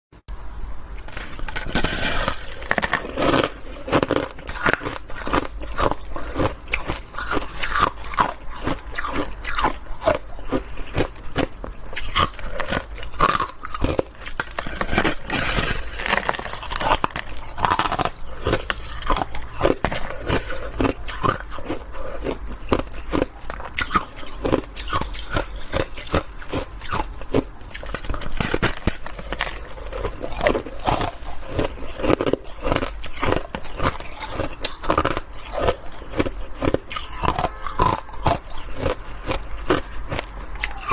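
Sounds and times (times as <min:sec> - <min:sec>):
crunching frozen ice: 0:00.9 - 0:40.9.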